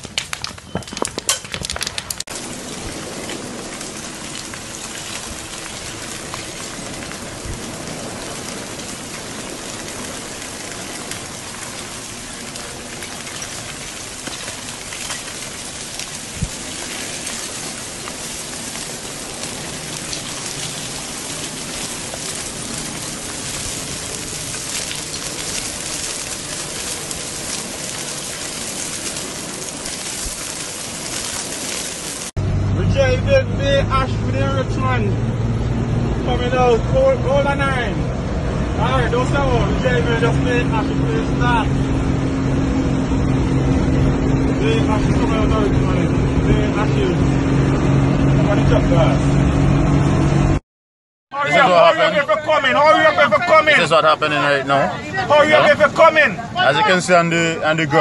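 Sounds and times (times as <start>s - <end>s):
lava crackling and hissing: 0.0s - 32.4s.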